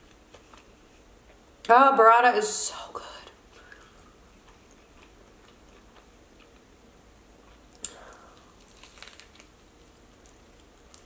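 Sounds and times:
crunchy eating sounds: 0:03.6 - 0:11.0.

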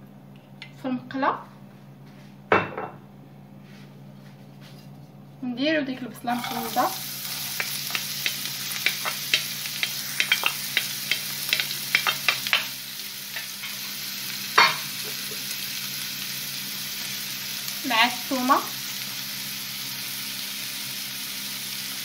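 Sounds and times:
onion sizzling in hot oil: 0:06.2 - 0:22.0.

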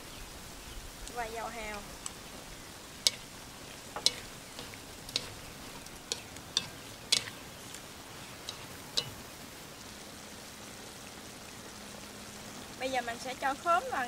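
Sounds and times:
faint frying sizzle: 0:00.0 - 0:14.0
utensil scraping metal wok: 0:01.7 - 0:09.2.

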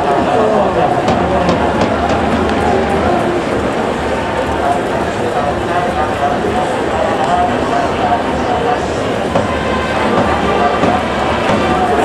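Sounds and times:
stadium crowd din: 0:00.0 - 0:12.0.

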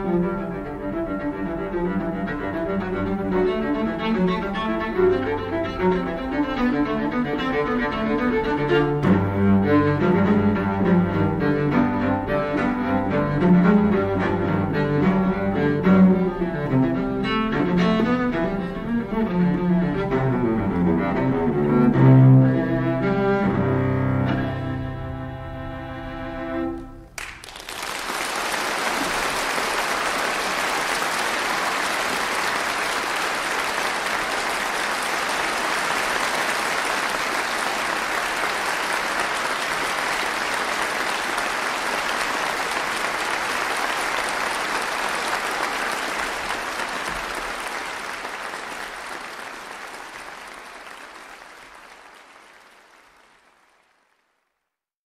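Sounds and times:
audience applauding: 0:27.1 - 0:54.5.

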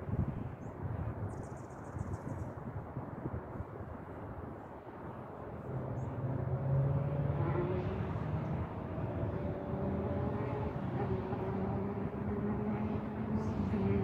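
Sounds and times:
motor engine drone: 0:05.7 - 0:14.0.

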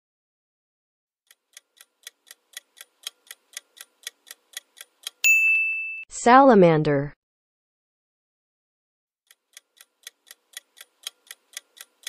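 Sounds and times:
clock-like ticking timer: 0:01.3 - 0:05.2, 0:09.3 - 0:12.0
loud ringing ding: 0:05.2 - 0:06.1.

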